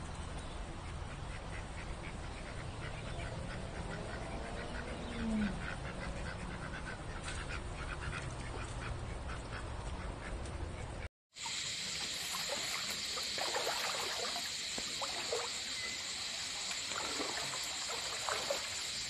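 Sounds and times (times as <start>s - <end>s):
ducks quacking: 1.0s - 11.0s.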